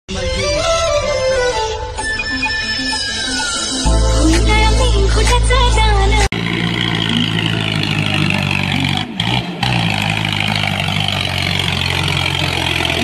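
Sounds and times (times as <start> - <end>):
tractor diesel engine running: 3.1 - 13.0.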